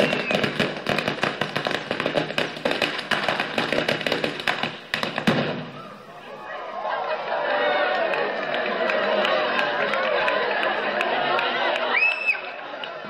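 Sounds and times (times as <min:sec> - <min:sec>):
firecrackers going off: 0:00.0 - 0:06.2.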